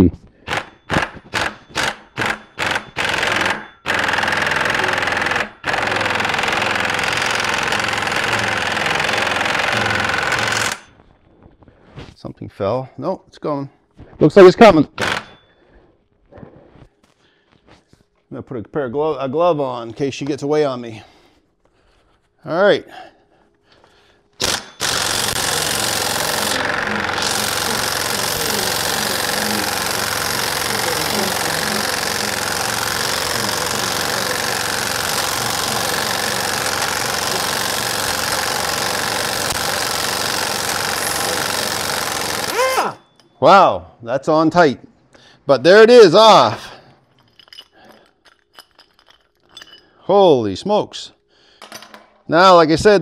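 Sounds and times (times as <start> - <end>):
impact wrench rattling: 0.4 - 10.9, 15.0 - 15.5, 24.4 - 43.4, 47.0 - 50.0.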